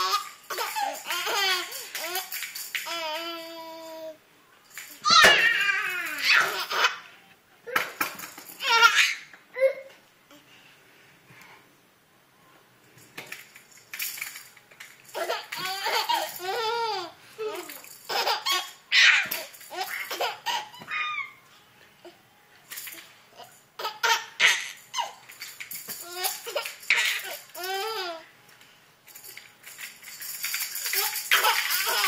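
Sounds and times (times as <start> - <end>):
baby laughing: 0.0 - 3.7, 5.1 - 7.9, 8.6 - 9.9, 15.1 - 21.4, 23.4 - 25.2, 26.0 - 28.3, 30.8 - 32.0.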